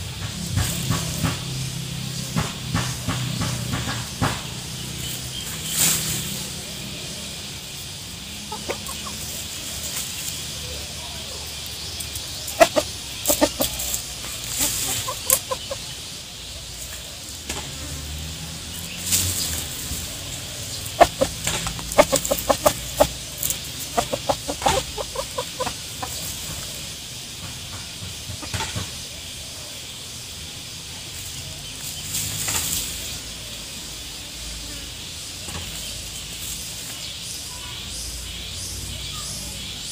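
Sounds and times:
chicken clucking: 0:00.2 - 0:17.8, 0:19.1 - 0:29.4
scratching in dry leaves: 0:00.3 - 0:39.2.

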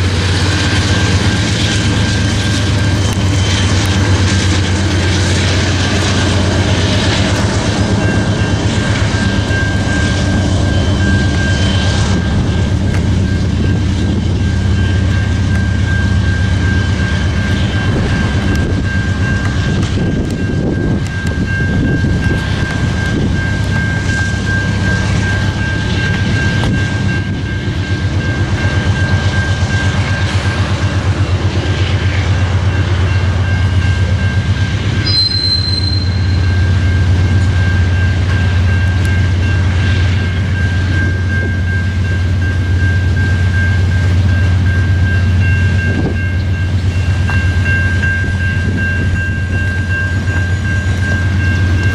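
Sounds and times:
train cars rumbling: 0:00.0 - 0:51.9
high ringing tone: 0:07.9 - 0:30.7, 0:32.7 - 0:51.9
brief high squeal: 0:35.1 - 0:36.5.

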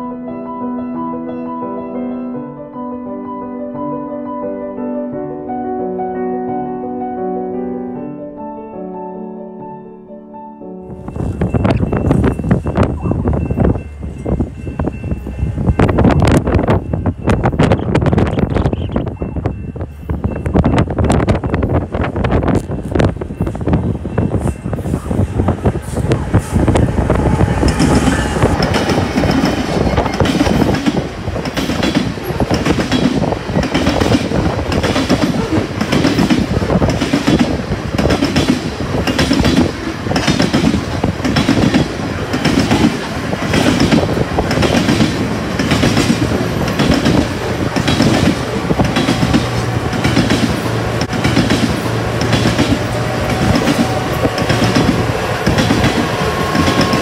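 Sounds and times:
diesel locomotives passing: 0:10.8 - 0:57.0
heavy train rumble: 0:10.8 - 0:57.0
train wheels clacking over rail joints: 0:25.4 - 0:57.0.

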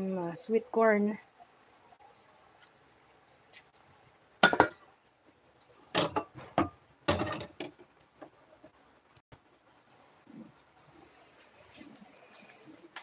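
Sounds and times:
metal pans clattering: 0:04.4 - 0:04.8, 0:06.0 - 0:07.9.

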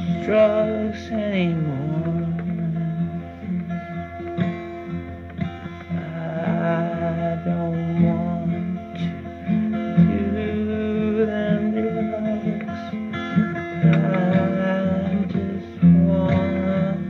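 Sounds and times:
song with guitar: 0:00.0 - 0:17.0.

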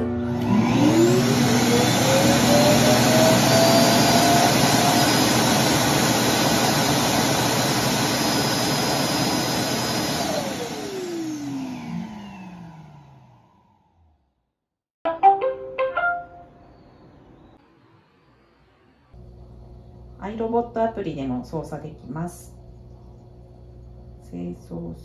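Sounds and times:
vacuum suction with motor whine: 0:00.0 - 0:14.1.

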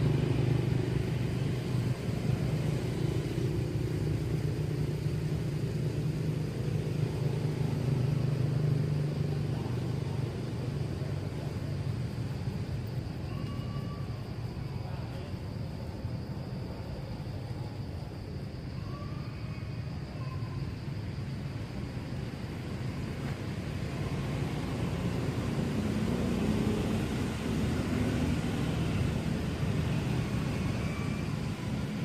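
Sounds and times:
vehicle engine humming: 0:00.0 - 0:13.3, 0:21.5 - 0:32.0.

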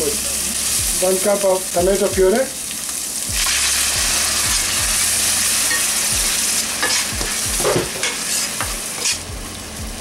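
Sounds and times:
puree sizzling in oil: 0:00.0 - 0:10.0
metal spatula scraping pan: 0:06.8 - 0:09.2.

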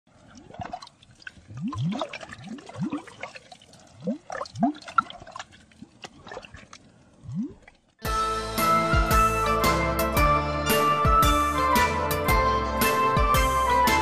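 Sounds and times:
rising bubble bloops: 0:00.3 - 0:07.9
cheerful music with jingling bells: 0:08.1 - 0:14.0.

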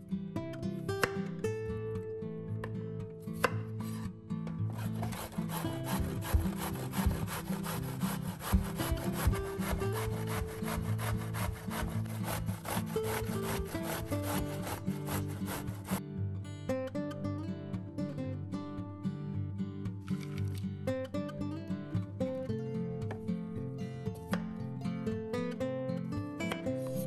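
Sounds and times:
zucchini grated on box grater: 0:04.7 - 0:16.0.

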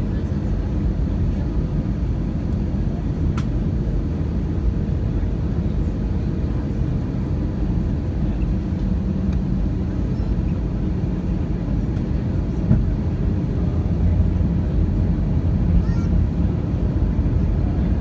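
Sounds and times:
jet engine and airflow rumble: 0:00.0 - 0:18.0.

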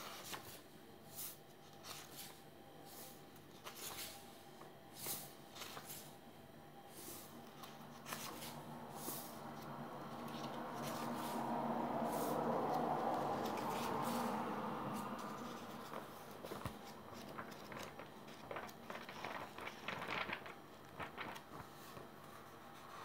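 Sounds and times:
book pages turning: 0:00.0 - 0:06.2, 0:06.9 - 0:23.0
steady hum: 0:00.0 - 0:23.0.

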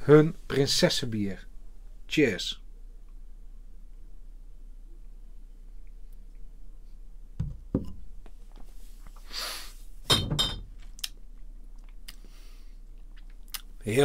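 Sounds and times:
short hiss: 0:09.2 - 0:09.9
glass set down on wooden table: 0:10.1 - 0:10.7.

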